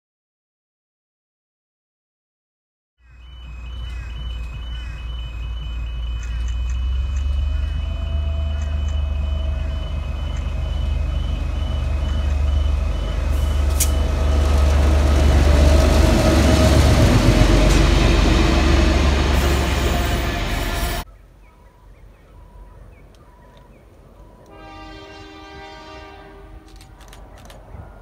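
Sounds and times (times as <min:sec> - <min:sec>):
level crossing warning beeps: 0:03.0 - 0:18.7
locomotive engine rumble: 0:03.0 - 0:21.1
wheel and rail noise: 0:03.0 - 0:21.1.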